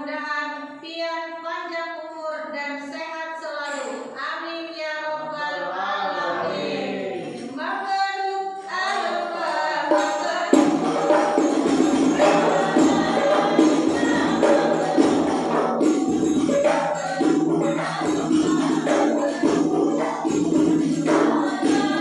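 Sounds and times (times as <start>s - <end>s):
voices singing together: 5.1s - 22.0s
frame drums beating: 8.8s - 22.0s.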